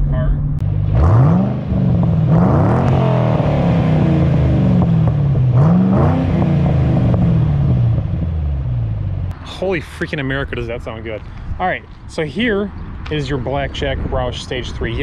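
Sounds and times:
car engine revving: 0:00.0 - 0:11.1.

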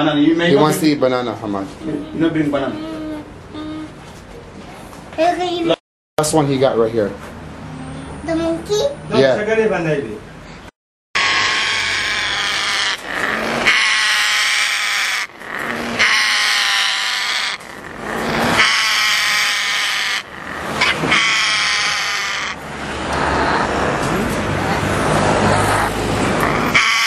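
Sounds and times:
parrots calling loudly: 0:11.2 - 0:27.0.

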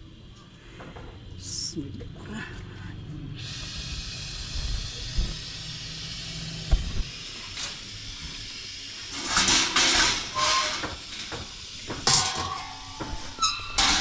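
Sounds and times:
gas burner hissing: 0:02.9 - 0:14.0
noisy burner bursts: 0:03.3 - 0:14.0.

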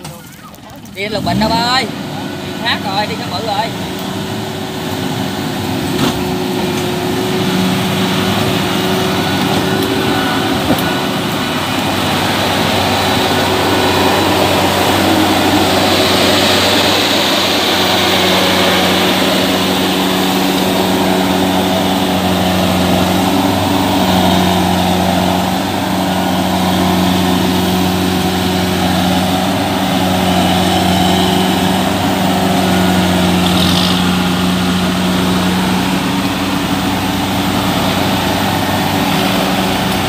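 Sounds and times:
combine harvester diesel engine: 0:00.0 - 0:40.0.

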